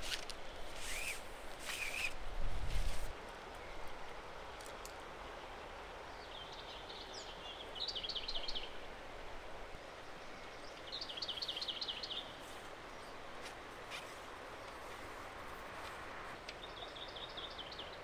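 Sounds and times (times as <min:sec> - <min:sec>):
background hiss: 0:00.0 - 0:18.0
songbird singing: 0:03.2 - 0:09.0, 0:09.8 - 0:15.0, 0:16.3 - 0:18.0.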